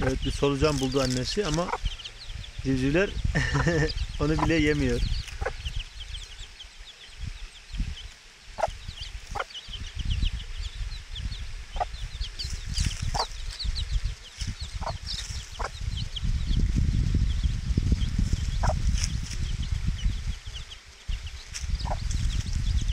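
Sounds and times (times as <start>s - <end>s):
hen clucking: 0.0s - 2.5s, 3.3s - 6.4s, 8.6s - 9.7s, 11.7s - 16.1s, 18.5s - 18.9s, 21.7s - 22.1s
chicks peeping: 0.0s - 22.9s.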